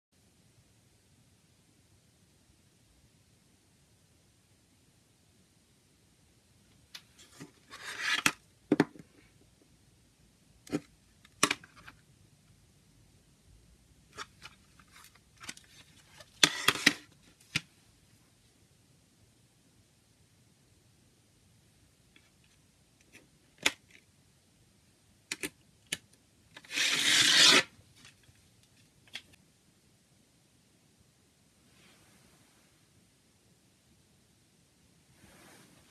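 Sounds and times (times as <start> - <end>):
plastic case sliding: 7.2 - 8.4
plastic case sliding scrape: 7.2 - 8.4, 15.6 - 17.1, 26.6 - 27.7.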